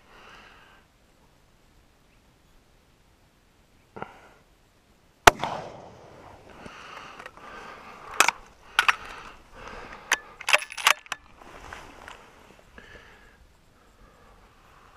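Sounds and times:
rifle shot echoing: 0:05.2 - 0:06.4
rifle handling clicks and knocks: 0:06.9 - 0:07.4, 0:08.0 - 0:11.4
clothing rustle: 0:10.6 - 0:12.6.

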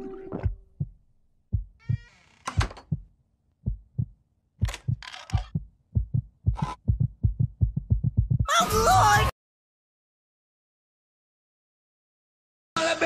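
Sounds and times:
cartoon heartbeat thumps: 0:00.3 - 0:08.6
door creak: 0:01.8 - 0:02.9, 0:05.0 - 0:05.5.

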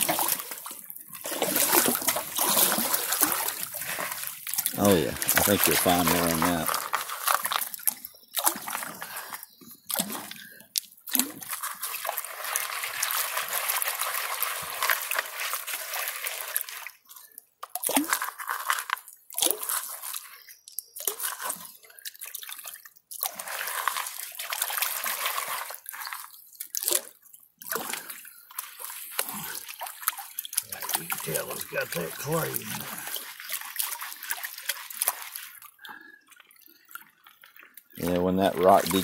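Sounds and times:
water sloshing and splashing: 0:00.0 - 0:39.0.

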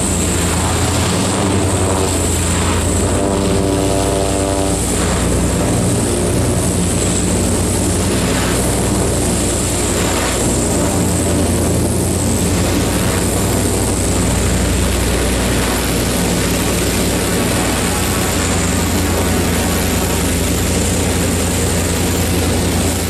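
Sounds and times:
airship propeller engines humming: 0:00.0 - 0:23.0
wide rushing noise: 0:00.0 - 0:23.0.

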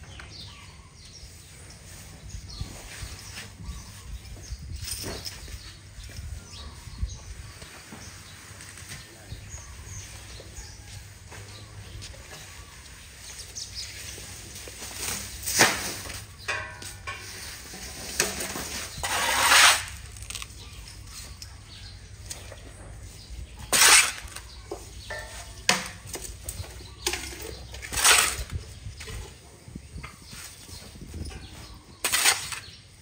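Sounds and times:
hay scraped off concrete floor: 0:17.0 - 0:20.5, 0:23.6 - 0:25.7, 0:27.2 - 0:28.8, 0:32.0 - 0:32.8.

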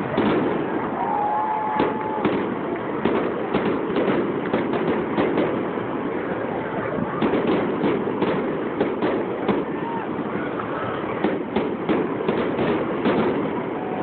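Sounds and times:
firework whistle: 0:00.0 - 0:05.4, 0:11.2 - 0:14.0
fireworks booming: 0:00.0 - 0:14.0
fireworks crackling: 0:00.0 - 0:14.0.

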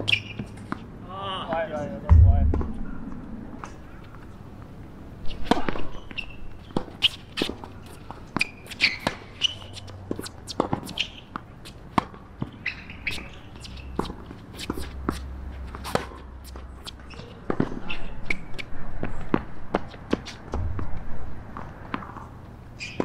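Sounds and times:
shoe squeaks: 0:00.0 - 0:00.6, 0:05.3 - 0:11.3, 0:12.5 - 0:15.3, 0:22.8 - 0:23.0
ball bouncing on court: 0:02.1 - 0:03.8
footsteps: 0:02.1 - 0:04.4.

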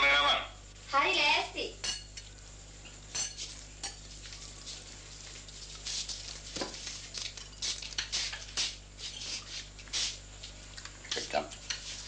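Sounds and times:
rustling and scuffing: 0:03.4 - 0:10.6.

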